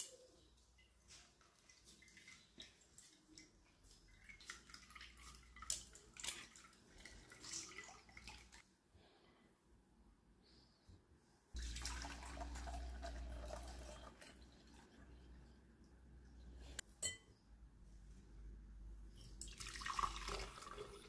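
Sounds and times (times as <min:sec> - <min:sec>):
juice dripping into bowl: 0:11.6 - 0:15.0, 0:19.4 - 0:21.0
juice pouring into jug: 0:11.6 - 0:15.2, 0:19.4 - 0:21.0.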